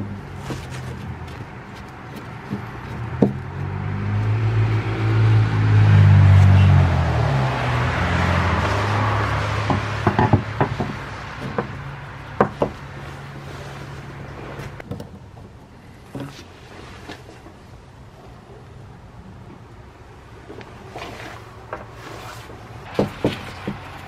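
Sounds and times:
vehicle passing by: 0:00.0 - 0:14.8.

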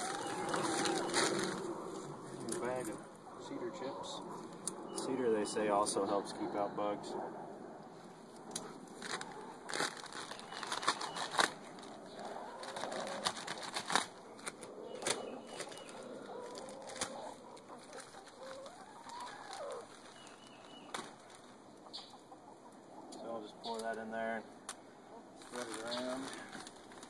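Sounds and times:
plastic bag crinkling: 0:00.0 - 0:01.8, 0:08.9 - 0:21.6, 0:25.4 - 0:27.0
hens calling: 0:00.0 - 0:04.2, 0:09.0 - 0:26.8.

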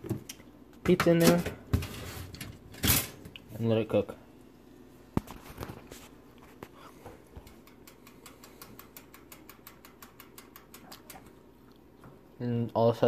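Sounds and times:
toaster timer ticking: 0:07.4 - 0:11.2.

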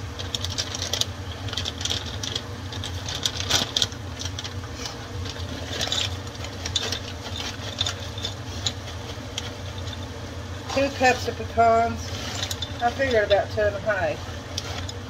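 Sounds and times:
sugar syrup bubbling and crackling: 0:00.0 - 0:11.5
range hood fan hum: 0:00.0 - 0:15.0.

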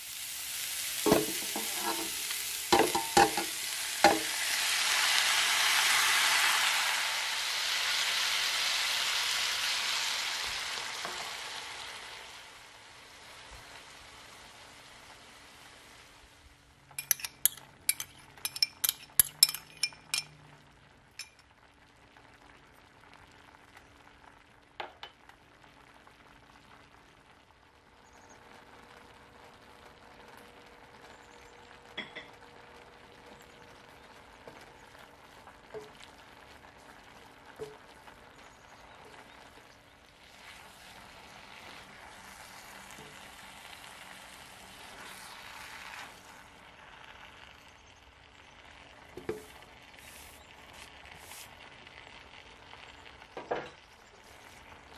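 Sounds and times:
frying sizzle: 0:00.0 - 0:54.9
stirring in wok: 0:01.0 - 0:04.4, 0:16.9 - 0:20.4
sharp clinks in wok: 0:01.1 - 0:04.3, 0:17.0 - 0:20.4, 0:21.2 - 0:21.4.

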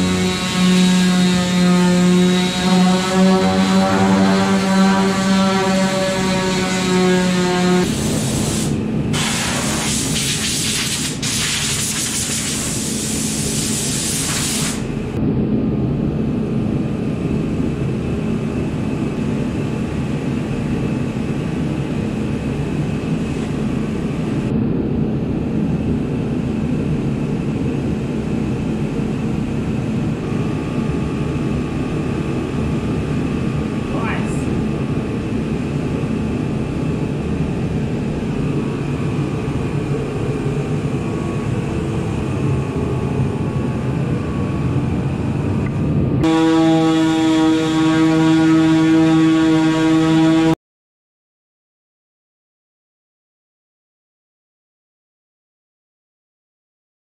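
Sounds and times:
orbital sander on sheet steel: 0:00.0 - 0:08.7
steady machine drone: 0:00.0 - 0:10.2, 0:12.6 - 0:50.6
loud hiss: 0:07.9 - 0:14.9.

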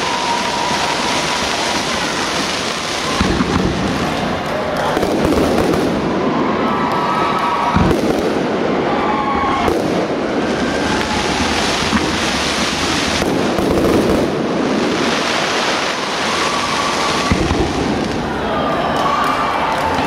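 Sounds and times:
hiss of burning fireworks: 0:00.0 - 0:20.0
firework shells bursting: 0:00.6 - 0:06.1.

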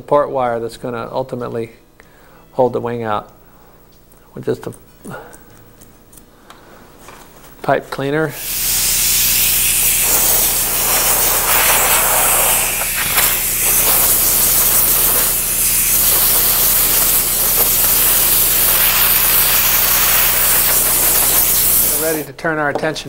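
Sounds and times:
air blow gun hissing: 0:08.3 - 0:22.3.

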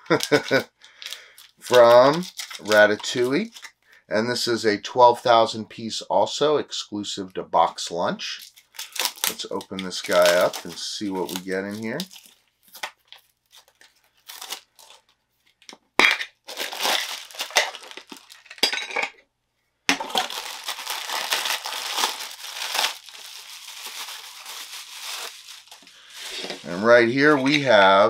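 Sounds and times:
plastic wrapping crinkling: 0:00.0 - 0:03.9, 0:08.4 - 0:15.6, 0:16.4 - 0:18.6, 0:20.0 - 0:27.9.

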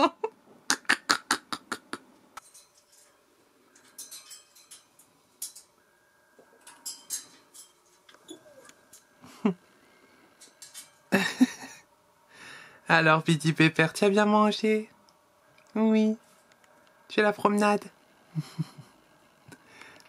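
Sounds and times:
parrot clicking on wire cage: 0:03.8 - 0:05.7, 0:10.4 - 0:11.0.

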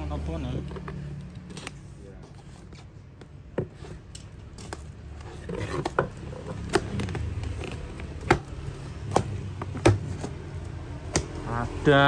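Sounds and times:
cardboard rustling: 0:00.8 - 0:10.9.

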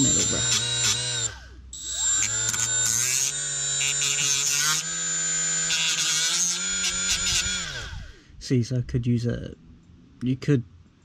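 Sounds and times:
rotary tool whining: 0:00.0 - 0:08.3.

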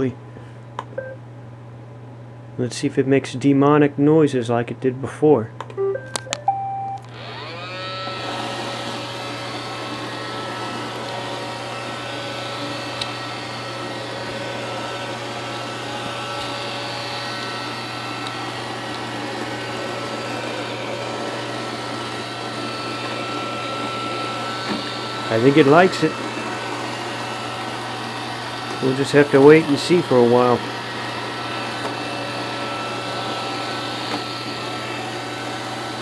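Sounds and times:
short beep: 0:05.8 - 0:07.0
robot vacuum motors whirring: 0:07.0 - 0:36.0.

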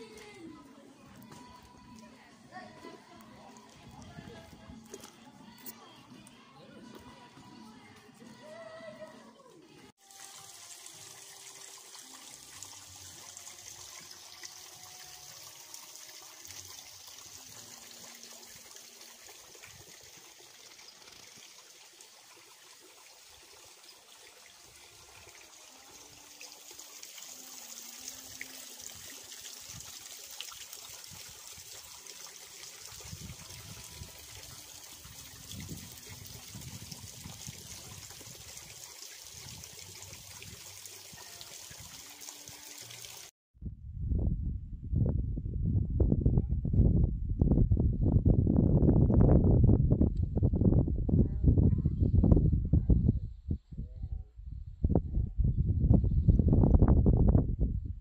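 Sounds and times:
water trickling over stones: 0:00.0 - 0:05.7, 0:10.0 - 0:43.3
low rumble: 0:43.6 - 0:53.2.

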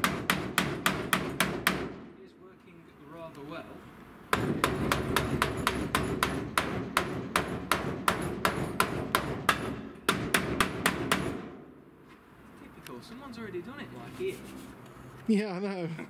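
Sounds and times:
hammer striking steel: 0:04.3 - 0:11.6.

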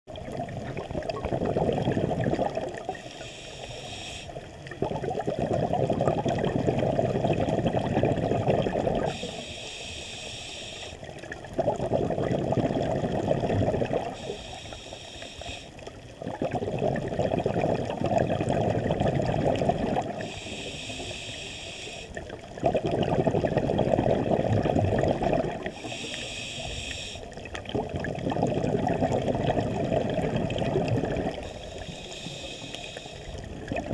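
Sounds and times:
rumble of exhaled bubbles: 0:00.1 - 0:03.1, 0:04.4 - 0:09.2, 0:11.0 - 0:14.4, 0:15.8 - 0:20.3, 0:22.1 - 0:25.9, 0:27.3 - 0:31.6, 0:33.2 - 0:33.9
regulator hissing inhale: 0:02.9 - 0:04.6, 0:09.0 - 0:11.2, 0:14.1 - 0:16.0, 0:20.1 - 0:22.3, 0:25.6 - 0:27.5, 0:31.3 - 0:33.5.

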